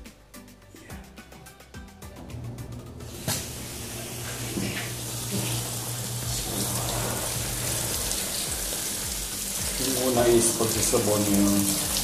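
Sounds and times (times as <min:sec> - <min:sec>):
hose water splashing into tub: 0:03.1 - 0:12.0.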